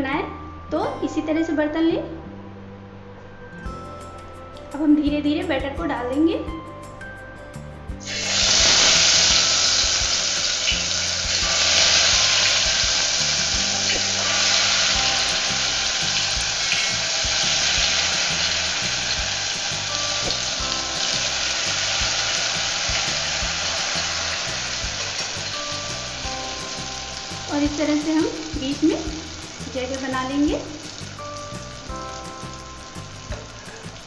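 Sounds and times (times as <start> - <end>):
batter frying in hot oil: 8.0 - 34.0.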